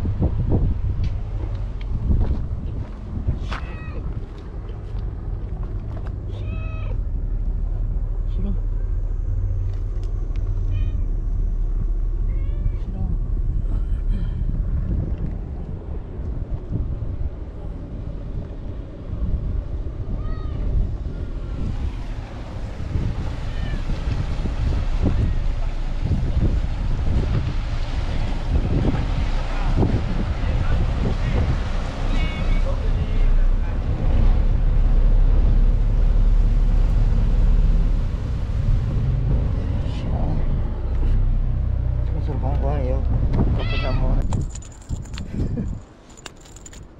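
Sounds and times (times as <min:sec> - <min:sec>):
low rumble: 0:00.0 - 0:46.9
wind on microphone: 0:00.0 - 0:46.9
cat meowing: 0:03.4 - 0:04.0, 0:06.3 - 0:07.0, 0:10.7 - 0:11.1, 0:12.2 - 0:13.0, 0:20.2 - 0:20.7, 0:23.4 - 0:23.9, 0:32.1 - 0:33.2, 0:43.6 - 0:44.2.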